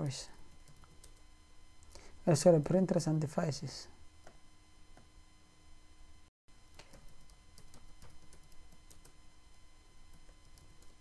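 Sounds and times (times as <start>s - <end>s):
faint steady hum: 0.0s - 11.0s
computer keyboard keystrokes: 6.7s - 9.2s, 10.1s - 11.0s.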